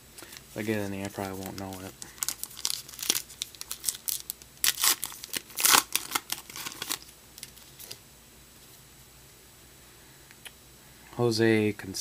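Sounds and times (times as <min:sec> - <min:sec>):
wrapper being torn open: 0:00.3 - 0:08.0.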